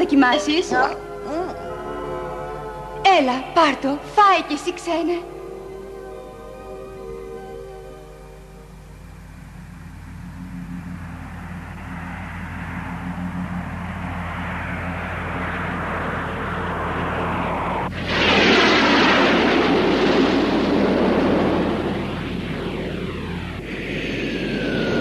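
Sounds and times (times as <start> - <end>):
low engine hum: 7.0 - 25.0
rushing noise: 9.4 - 25.0
rocket thrust blast: 17.2 - 25.0.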